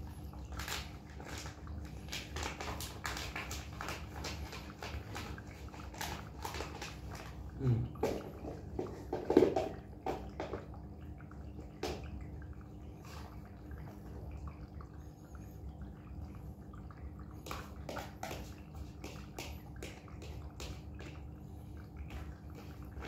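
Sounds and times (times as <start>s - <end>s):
steady low hum: 7.2s - 23.0s.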